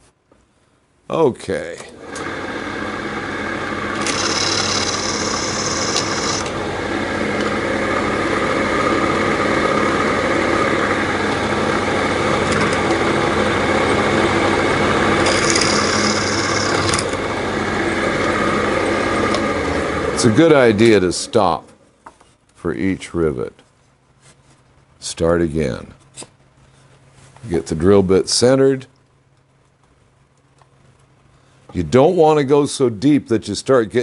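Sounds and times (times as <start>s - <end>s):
drill press motor running: 2.0s - 20.2s
drill bit scraping metal: 4.0s - 6.4s, 15.2s - 17.0s.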